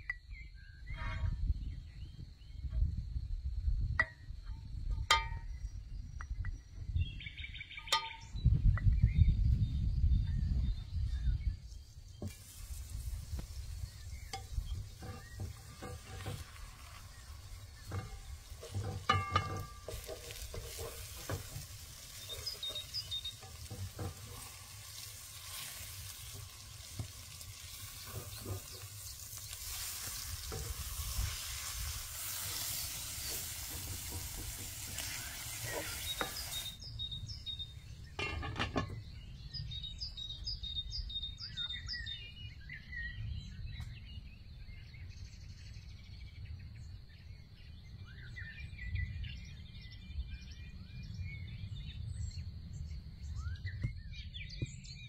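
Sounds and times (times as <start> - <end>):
birds chirping: 5.2 - 55.0
low outdoor rumble: 12.1 - 40.3
food sizzling in frying pan: 12.2 - 36.8
stirring knocks: 14.3 - 36.8.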